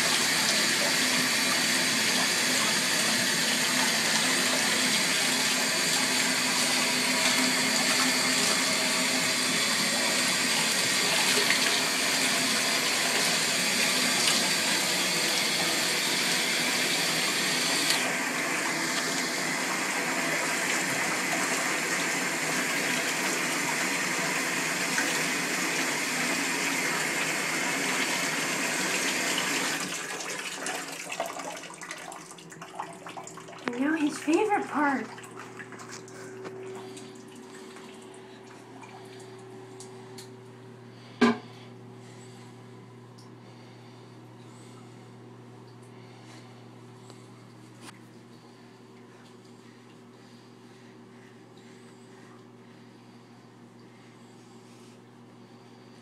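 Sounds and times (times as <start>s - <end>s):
water running from bathtub tap: 0.0s - 40.4s.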